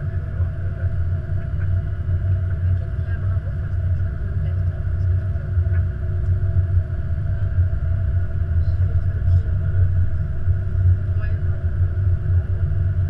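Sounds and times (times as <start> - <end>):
low rumble of airliner rolling: 0.0 - 13.0.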